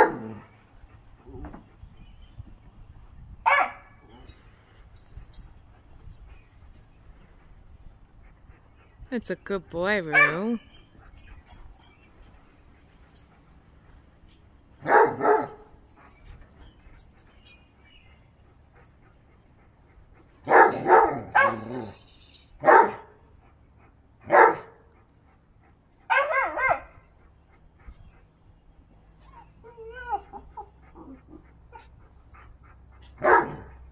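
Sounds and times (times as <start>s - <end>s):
puppy barking and yipping: 3.5s - 3.9s, 10.1s - 10.6s, 20.5s - 21.9s, 26.1s - 27.0s, 33.2s - 33.7s.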